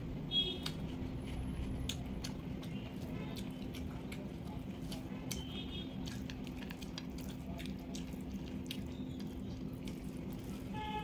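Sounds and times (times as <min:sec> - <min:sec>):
wet eating clicks and squishes: 0:00.5 - 0:10.8.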